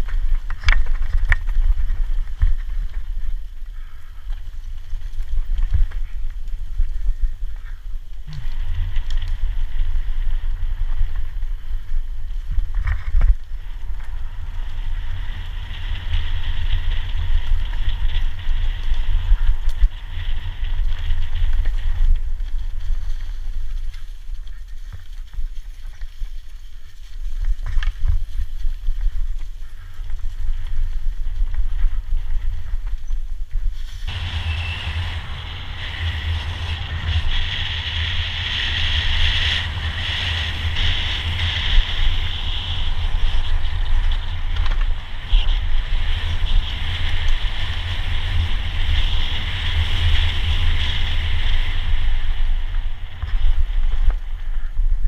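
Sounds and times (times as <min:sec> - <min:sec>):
wind buffeting microphone: 0:00.0 - 0:55.0
tyres rolling on asphalt: 0:34.0 - 0:54.4.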